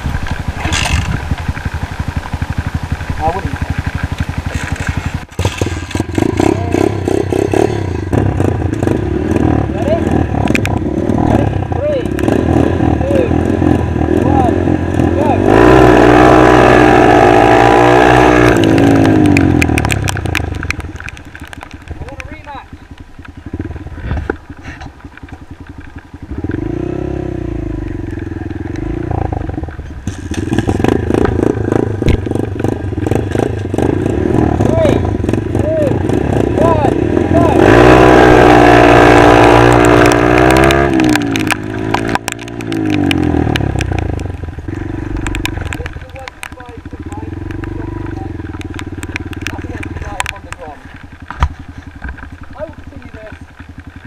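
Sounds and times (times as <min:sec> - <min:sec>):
motorcycle engine revving: 0:00.0 - 0:54.0
sharp clicks: 0:18.4 - 0:23.4, 0:39.6 - 0:53.7.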